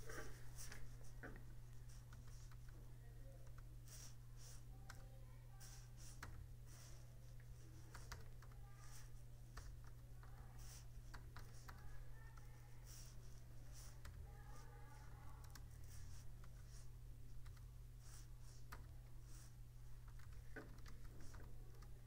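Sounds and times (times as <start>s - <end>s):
low steady hum: 0.0s - 22.0s
keyboard typing: 7.8s - 13.1s, 13.7s - 16.8s, 17.4s - 22.0s.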